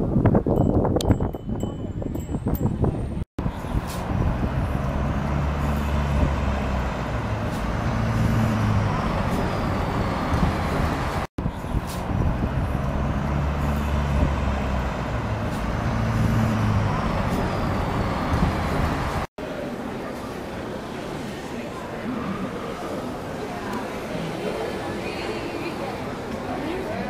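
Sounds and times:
vehicle engine droning: 3.4 - 19.3.

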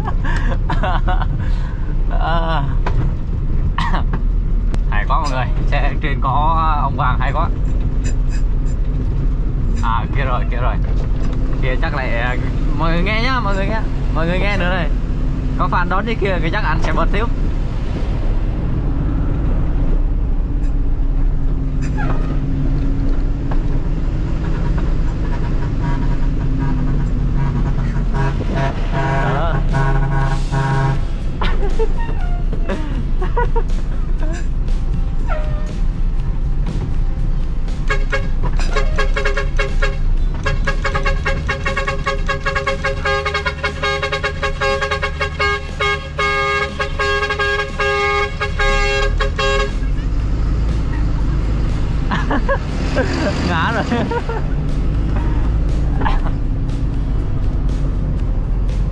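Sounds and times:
truck diesel engine running: 0.0 - 58.9
musical truck horn: 24.4 - 34.6, 35.2 - 36.0, 37.7 - 52.0.

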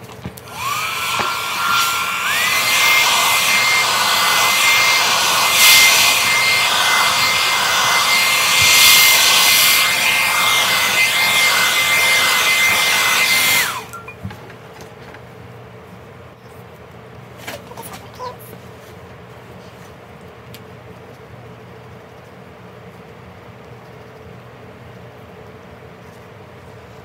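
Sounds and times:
hair dryer blowing: 0.2 - 14.1.

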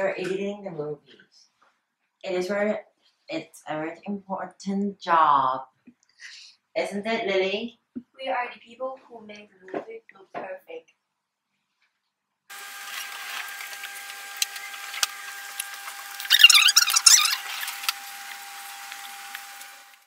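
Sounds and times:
electrical whine: 12.5 - 20.0
squeaky wavering sound: 16.2 - 17.9.

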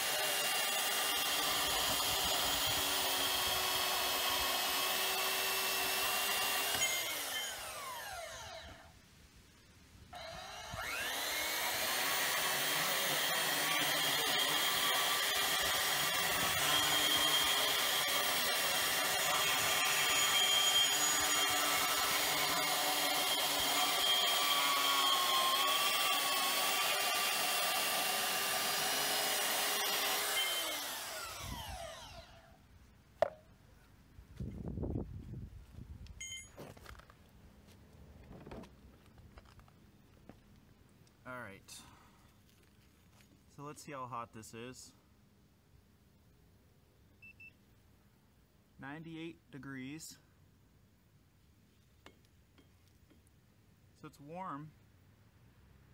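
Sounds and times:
bandsaw cutting steel tubing: 0.0 - 8.8, 10.2 - 32.4.

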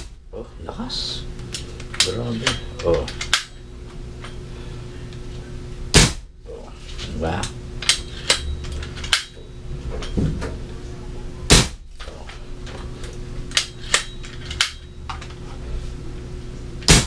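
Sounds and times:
air gun shot: 5.9 - 6.3, 11.5 - 11.8.

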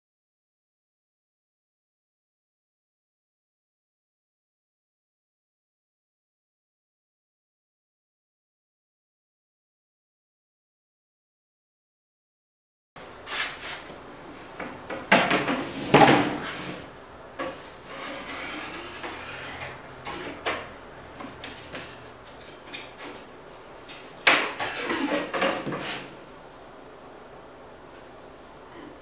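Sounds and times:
wood knocking and rubbing on board: 17.4 - 26.1.

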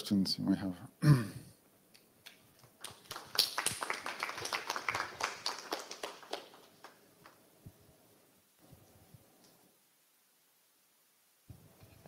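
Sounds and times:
audience applauding: 2.7 - 7.4.

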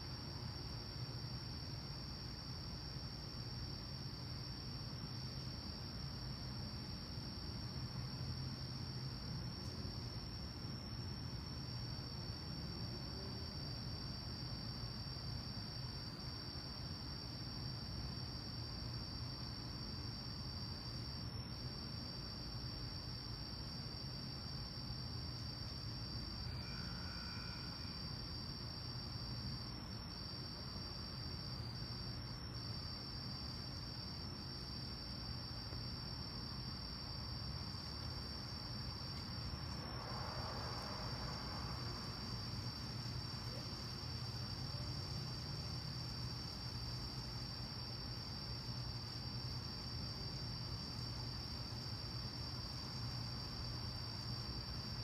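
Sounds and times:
crickets chirping chorus: 0.0 - 55.0.

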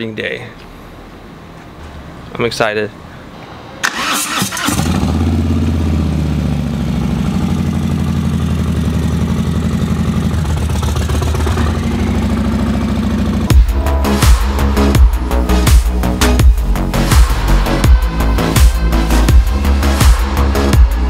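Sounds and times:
motorcycle engine starting and idling: 3.8 - 13.8.

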